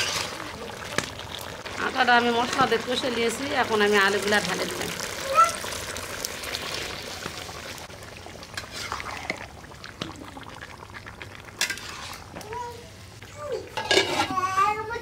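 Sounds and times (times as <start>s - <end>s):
spoon scraping a pan: 0.0s - 0.4s, 11.6s - 12.4s, 13.7s - 14.4s
food sizzling in a frying pan: 0.0s - 15.0s.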